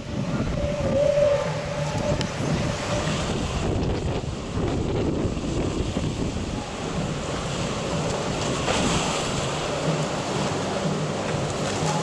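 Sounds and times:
rough sea surf breaking: 0.0 - 12.0
wind buffeting microphone: 0.0 - 12.0.

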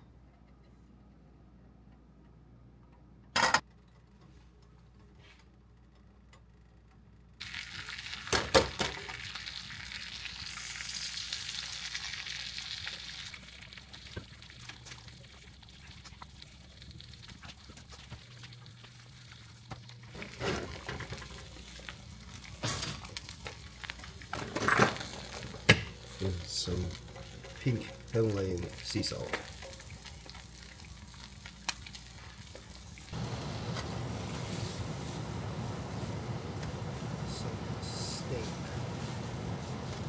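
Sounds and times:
food sizzling in a pan: 7.4 - 15.8, 19.0 - 40.0.

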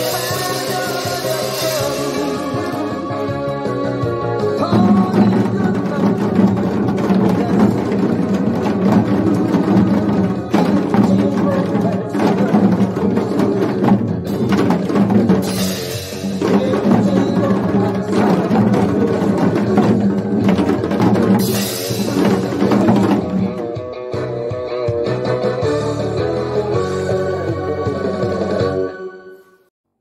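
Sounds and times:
drums struck with sticks: 0.0 - 3.0, 4.6 - 23.9
recorded trot music: 0.0 - 29.1.

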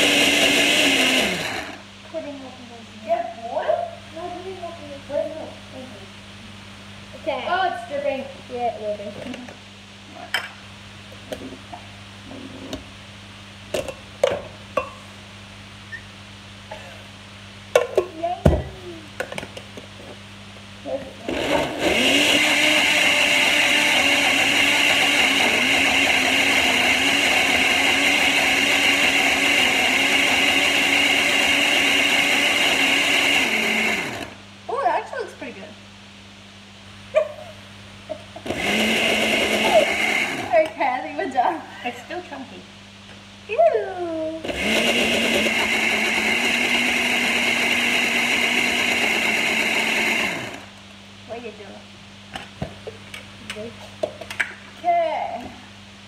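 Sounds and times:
blender running: 0.0 - 1.9, 21.2 - 34.4, 38.4 - 40.7, 44.4 - 50.8.

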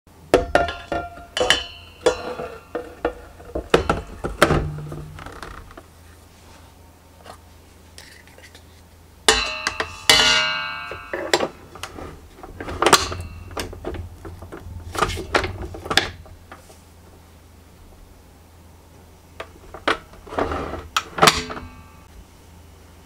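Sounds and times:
metal clanking on steel bowl: 0.4 - 5.0, 9.3 - 14.1.

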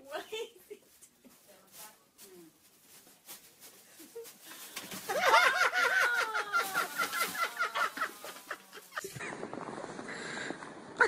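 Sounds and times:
person giggling: 5.1 - 9.4.

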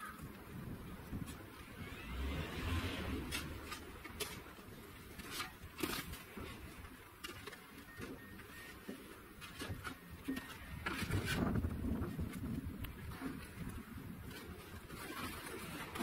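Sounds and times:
snow shovel scraping snow: 1.8 - 4.4.

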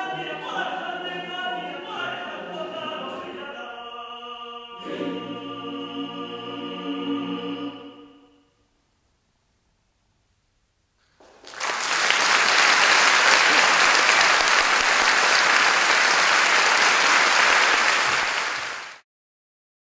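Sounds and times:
audience applauding: 11.2 - 19.0.

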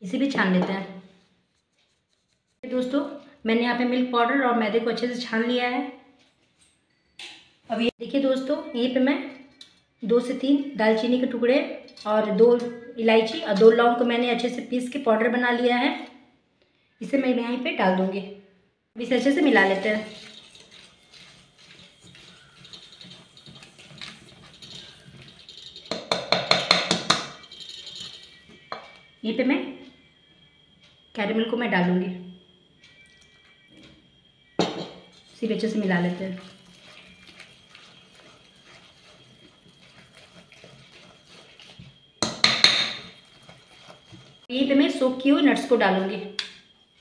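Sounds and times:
whisk stirring batter in metal bowl: 1.5 - 2.9, 19.3 - 28.4, 35.1 - 44.5
whisk clinking against metal bowl: 19.4 - 29.0, 34.6 - 44.5.

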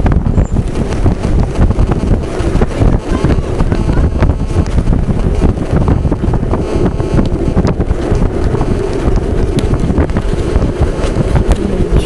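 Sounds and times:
low rumble of rolling on road: 0.0 - 12.0
wind buffeting microphone: 0.0 - 12.0.

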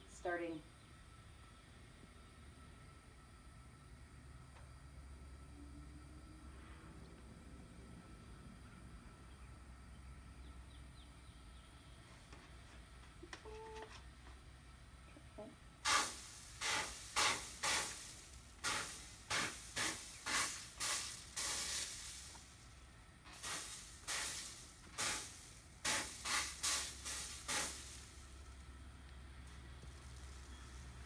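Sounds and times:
flux sizzling on hot metal: 15.8 - 31.0.

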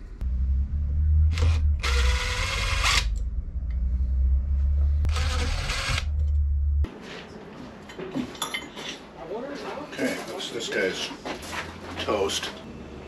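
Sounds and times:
steady low hum: 0.0 - 6.9
power driver whirring: 1.3 - 3.3, 5.0 - 6.4.

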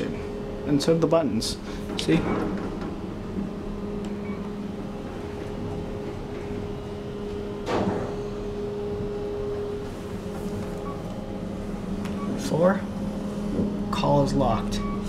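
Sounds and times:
elevator car hum: 0.0 - 15.0
steady tone: 0.0 - 15.0.

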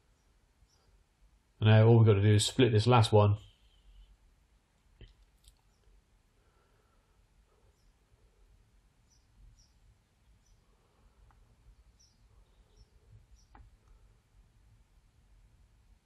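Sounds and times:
faint high chirps: 3.3 - 4.3, 4.9 - 14.4
soft clicks: 5.0 - 6.0.

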